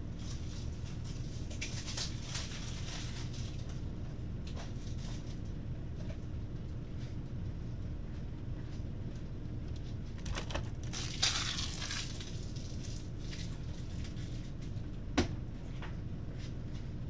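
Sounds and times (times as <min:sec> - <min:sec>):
low background hum: 0:00.0 - 0:17.0
crinkling rustle: 0:00.2 - 0:03.8, 0:10.2 - 0:14.6.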